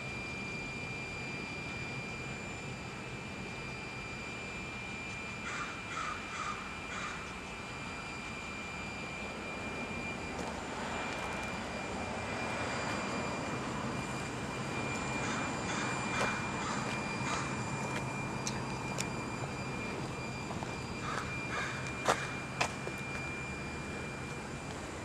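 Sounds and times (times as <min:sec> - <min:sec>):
heavy engine drone: 0:00.0 - 0:25.0
crow cawing: 0:05.4 - 0:07.3, 0:15.2 - 0:17.5, 0:21.0 - 0:22.4.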